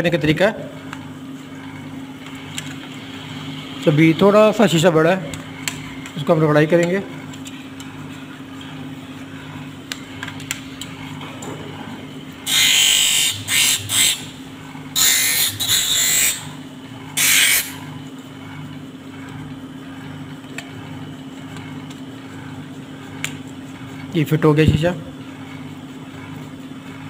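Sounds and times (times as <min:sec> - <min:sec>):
motor humming: 0:00.8 - 0:27.0
harsh grinding of glass: 0:15.0 - 0:16.5, 0:17.2 - 0:17.8.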